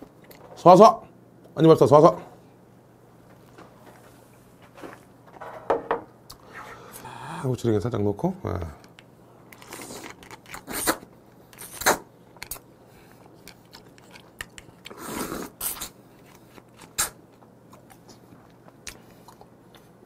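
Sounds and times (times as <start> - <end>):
chewing: 11.6 - 20.0.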